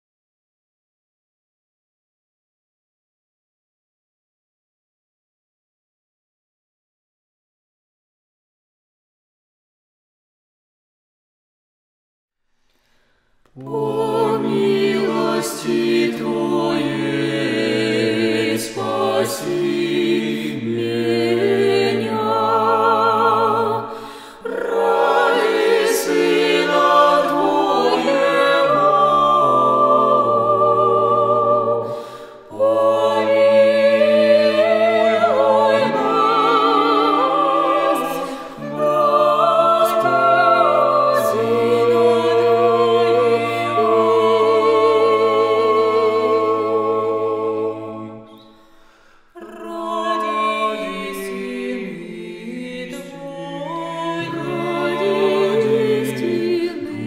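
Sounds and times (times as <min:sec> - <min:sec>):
vocal quartet singing a cappella: 0:13.5 - 0:57.0.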